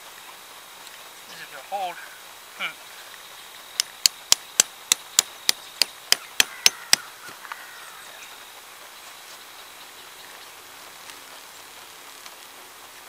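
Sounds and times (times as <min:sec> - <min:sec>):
sharp evenly spaced knocks: 0:03.8 - 0:07.0.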